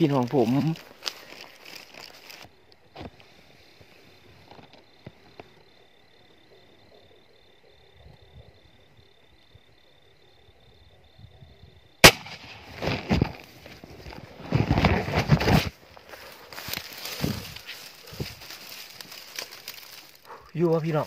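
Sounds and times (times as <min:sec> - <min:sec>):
rustling through dry grass: 0:00.0 - 0:05.7, 0:12.0 - 0:21.0
insect chirping: 0:00.0 - 0:21.0
sharp crack: 0:12.0 - 0:13.4.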